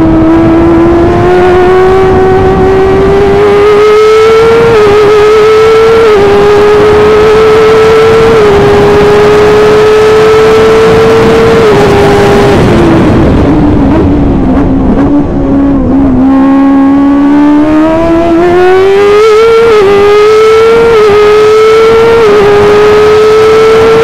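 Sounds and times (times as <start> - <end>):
race car engine revving: 0.0 - 24.0.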